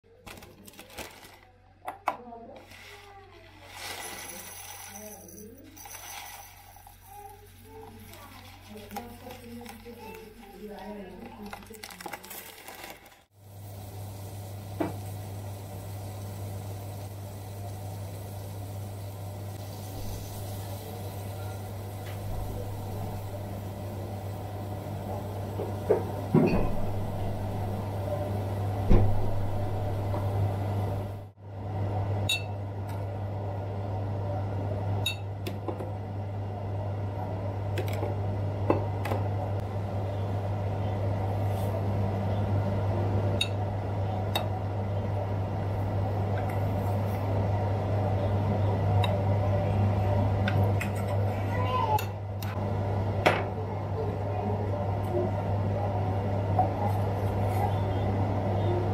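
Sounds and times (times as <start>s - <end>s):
steady low hum: 13.3s - 58.9s.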